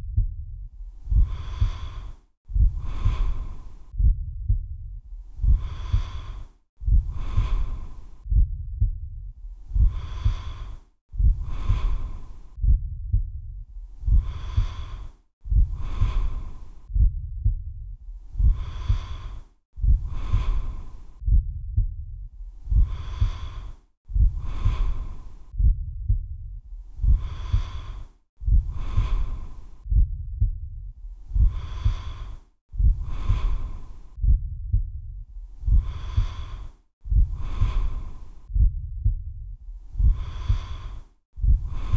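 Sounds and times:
slow human breathing: 0:00.0 - 0:41.9
low rapid thudding pulse: 0:02.5 - 0:04.8, 0:06.8 - 0:09.1, 0:11.2 - 0:13.4, 0:16.9 - 0:17.7, 0:21.2 - 0:22.0, 0:25.6 - 0:26.3, 0:34.2 - 0:35.0, 0:38.5 - 0:39.3, 0:41.4 - 0:41.9.

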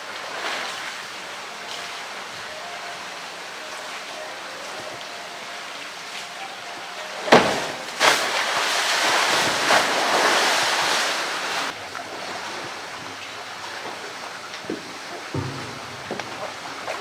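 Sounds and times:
water churning and sloshing: 0:00.0 - 0:17.0
hard splashes into water: 0:07.2 - 0:14.2.

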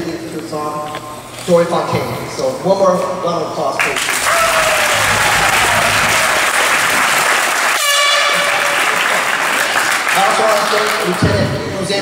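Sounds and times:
audience applauding: 0:03.8 - 0:11.2
high horn-like tone: 0:04.3 - 0:08.9.

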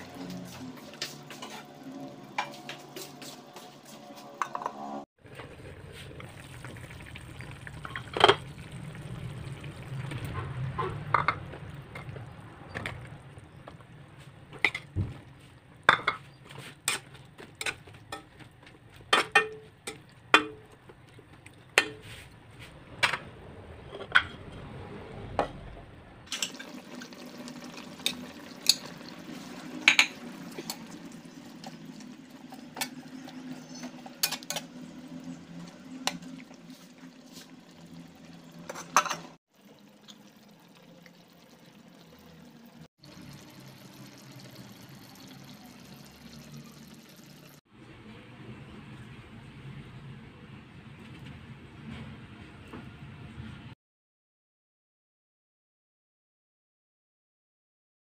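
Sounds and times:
metal spatula scraping wok: 0:00.0 - 0:05.0, 0:16.1 - 0:18.4, 0:26.3 - 0:37.9
sauce simmering: 0:05.2 - 0:19.0, 0:26.3 - 0:38.7, 0:39.5 - 0:47.6.

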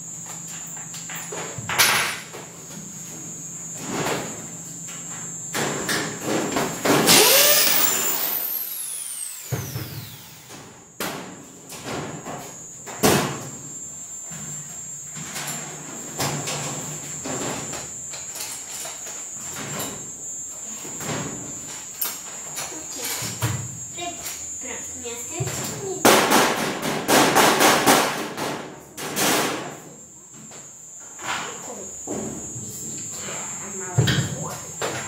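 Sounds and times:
electric drill whining: 0:06.9 - 0:10.7.

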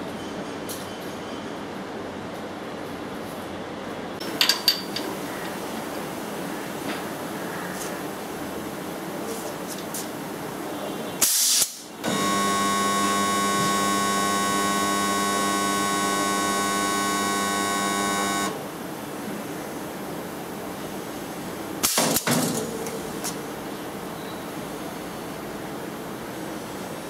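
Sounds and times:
pneumatic air hiss: 0:11.2 - 0:11.9, 0:21.8 - 0:22.3
welding transformer humming: 0:11.6 - 0:18.8.

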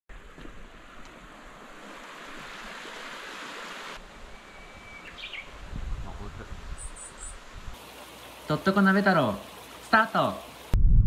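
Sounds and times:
flowing stream: 0:00.1 - 0:05.8, 0:06.4 - 0:10.8
bird singing: 0:04.3 - 0:05.6, 0:06.7 - 0:07.4.

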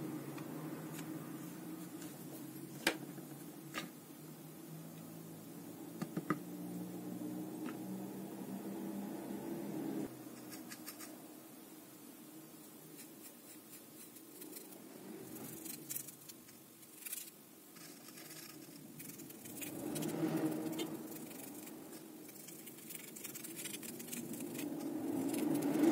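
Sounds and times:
steady low hum: 0:00.0 - 0:25.9
paintbrush scratching and tapping: 0:15.5 - 0:25.9.

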